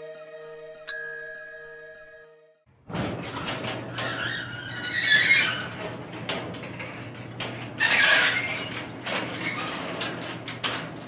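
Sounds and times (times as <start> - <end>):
garage door rollers squealing: 2.8 - 11.0.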